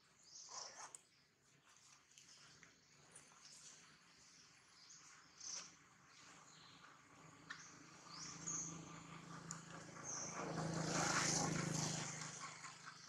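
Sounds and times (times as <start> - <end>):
passing vehicle engine hum: 7.0 - 13.0.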